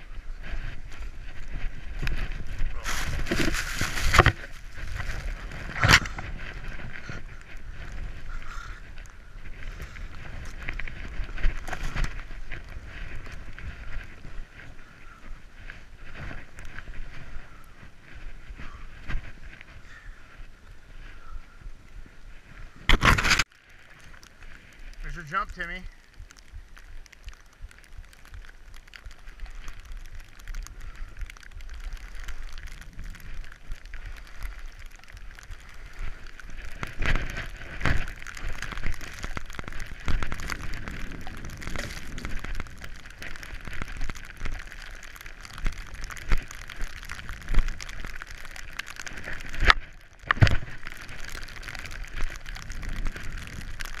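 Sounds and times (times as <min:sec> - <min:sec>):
snow spray pattering on helmet: 0:00.0 - 0:19.8, 0:23.4 - 0:54.0
skis running through powder snow: 0:00.0 - 0:23.4, 0:24.0 - 0:54.0
wind rumbling on microphone: 0:00.0 - 0:54.0.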